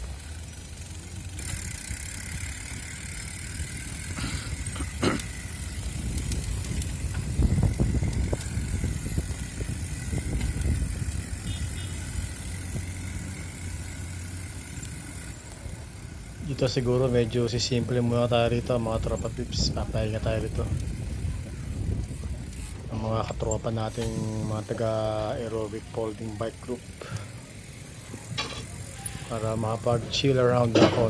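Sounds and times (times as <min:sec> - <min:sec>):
bicycle rolling on concrete: 0:00.0 - 0:31.0
wind noise on microphone: 0:01.4 - 0:13.1, 0:18.5 - 0:24.8.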